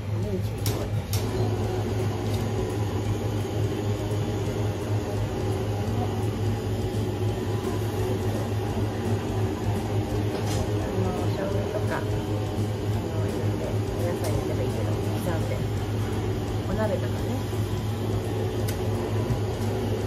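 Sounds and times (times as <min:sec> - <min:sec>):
steady low machine hum: 0:00.0 - 0:20.0.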